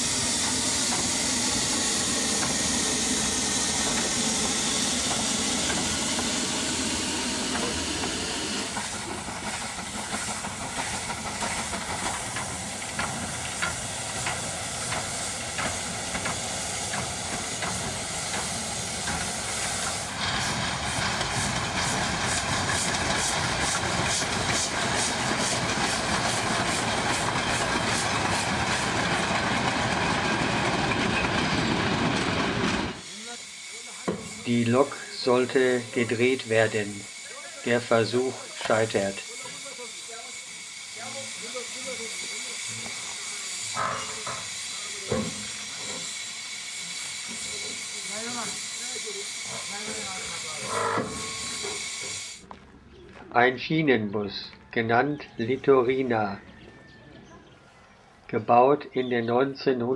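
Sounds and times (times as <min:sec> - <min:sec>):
train clanks and knocks: 0:00.0 - 0:33.1, 0:41.6 - 0:46.2, 0:49.4 - 0:52.2
steam locomotive hissing: 0:00.0 - 0:52.5.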